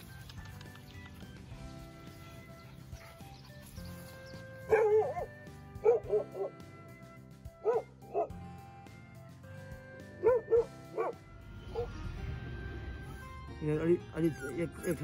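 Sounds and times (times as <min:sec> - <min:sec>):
background music: 0:00.0 - 0:15.0
puppy yipping and barking: 0:04.7 - 0:06.5, 0:10.2 - 0:11.2.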